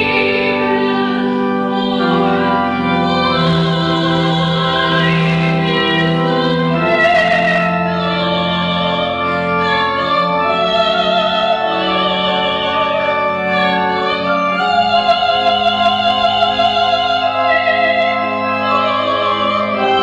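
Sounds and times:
woman singing operatically: 0.0 - 9.1, 14.0 - 18.2
organ sustaining low notes: 0.0 - 20.0.

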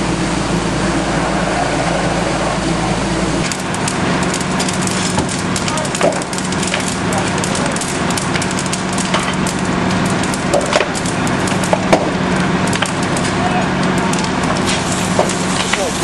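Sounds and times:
fire crackling and snapping: 0.0 - 16.0
fire engine running: 0.0 - 16.0
loud fire cracks: 0.0 - 16.0.

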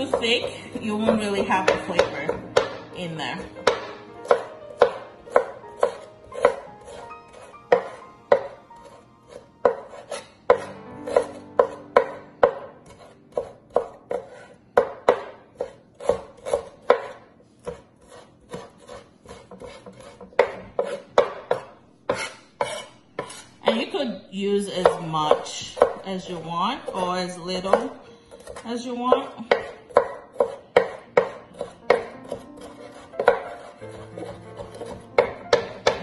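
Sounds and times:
knife striking cutting board: 0.0 - 2.8, 3.6 - 17.8, 29.5 - 36.0.

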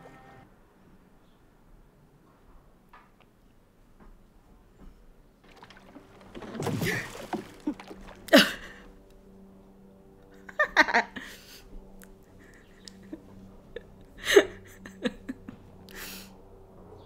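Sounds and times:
faint steady tones: 0.0 - 2.1
woman laughing: 6.9 - 8.8, 10.4 - 11.6, 12.4 - 16.2.

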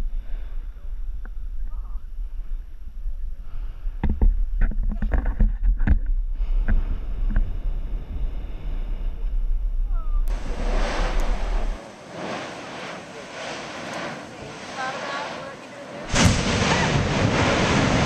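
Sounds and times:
volcano rumbling: 0.0 - 18.0
wind buffeting microphone: 0.0 - 18.0
loud hissing rush: 10.3 - 18.0.

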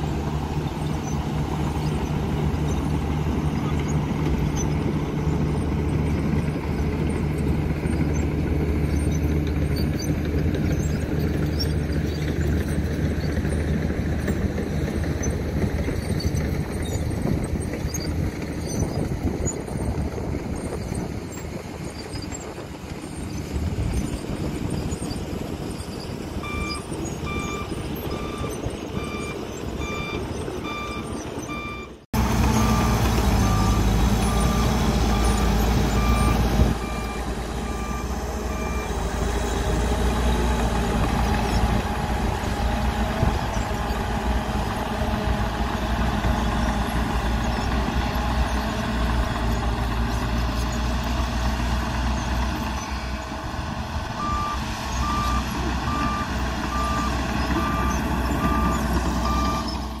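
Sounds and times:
bulldozer diesel engine under load: 0.0 - 60.0
dump truck engine: 0.0 - 60.0
reversing alarm beeping: 26.4 - 39.5, 54.2 - 59.8.

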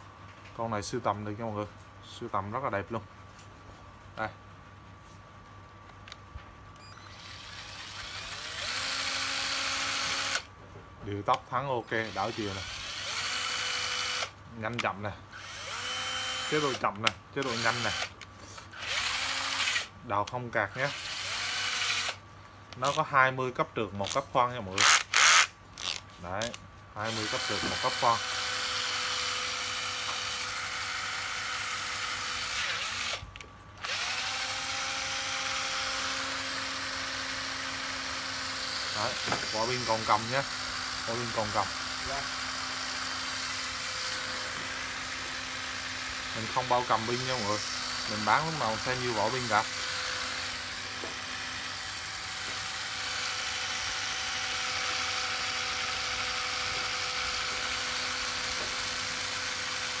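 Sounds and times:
cordless drill motor whine: 6.8 - 10.5, 11.9 - 14.4, 15.3 - 19.9, 20.7 - 22.2, 24.8 - 26.0, 27.0 - 60.0.

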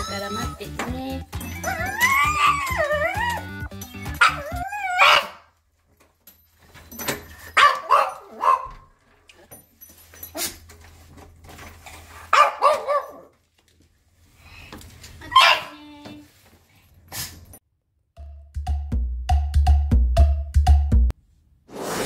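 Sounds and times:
dog whining: 1.4 - 5.4
dog yelping: 1.5 - 5.5, 7.6 - 8.8, 12.3 - 13.3, 15.3 - 15.7.

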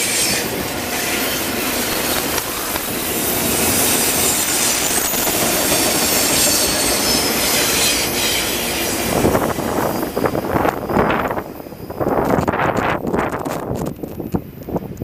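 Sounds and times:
train wheels clattering on rails: 0.0 - 15.0
high-pitched wheel squeal: 3.4 - 11.2.

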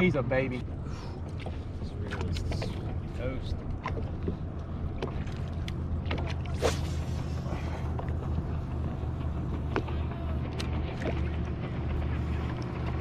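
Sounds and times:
steady low hum: 0.0 - 13.0
fishing rod swishing: 6.4 - 7.9.

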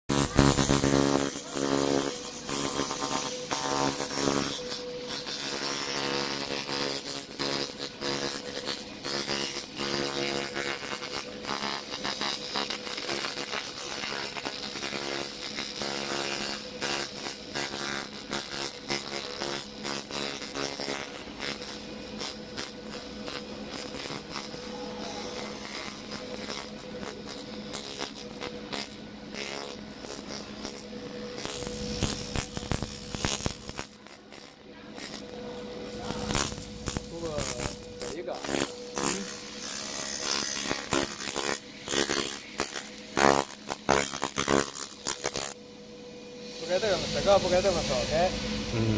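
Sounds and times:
laser cleaner buzzing and crackling: 0.0 - 45.6
steady hum: 0.1 - 10.6, 21.2 - 48.9.

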